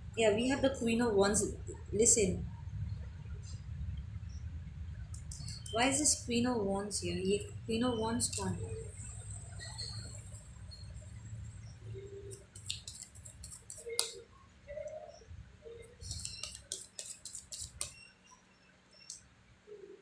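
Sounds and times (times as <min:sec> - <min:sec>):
low steady hum: 0:00.0 - 0:20.0
cards being shuffled: 0:12.3 - 0:14.2, 0:16.0 - 0:18.0.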